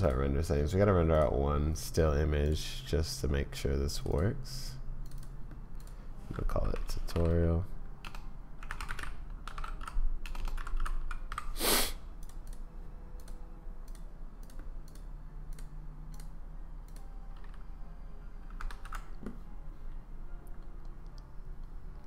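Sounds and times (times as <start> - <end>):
keyboard keystrokes and clicks: 5.0 - 11.6, 12.2 - 17.7, 18.5 - 19.4
short puff of noise: 11.6 - 12.0.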